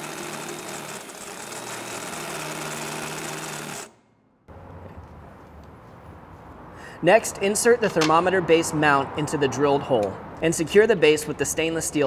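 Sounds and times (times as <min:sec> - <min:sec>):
power drill boring into metal: 0:00.0 - 0:03.9.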